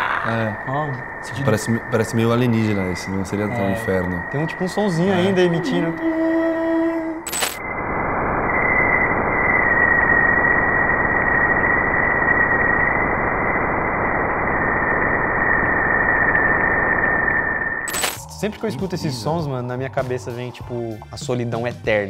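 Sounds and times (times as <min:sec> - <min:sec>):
dense crackling hiss: 0:00.0 - 0:17.1
thin steady whistle: 0:00.1 - 0:21.0.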